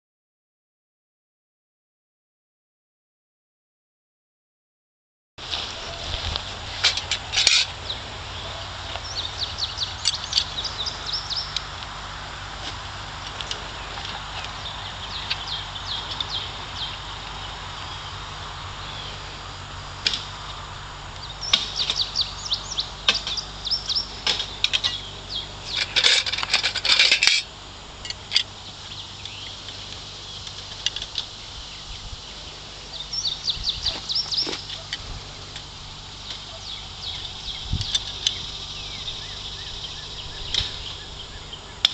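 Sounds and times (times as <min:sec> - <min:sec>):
birds chirping: 0:05.4 - 0:41.9
barbed wire clinking and rattling: 0:05.5 - 0:07.9, 0:23.0 - 0:28.5.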